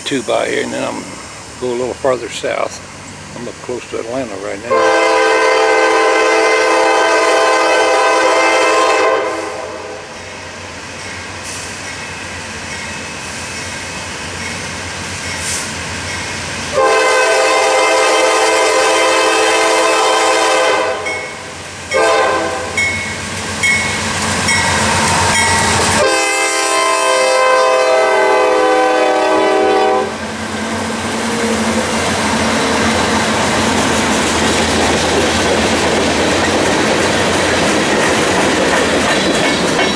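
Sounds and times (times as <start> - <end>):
locomotive air horn: 4.7 - 10.1, 16.7 - 22.8, 25.9 - 30.2
train wheels clattering on rails: 30.3 - 39.9.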